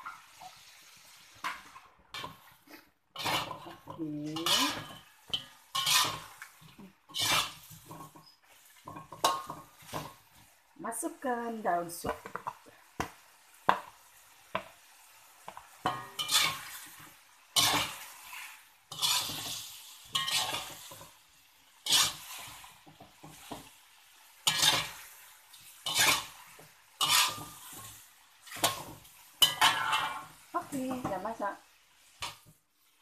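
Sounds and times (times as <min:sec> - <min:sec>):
metal spatula scraping wok: 0:00.0 - 0:10.6, 0:15.5 - 0:33.0
spatula taps: 0:12.0 - 0:14.8.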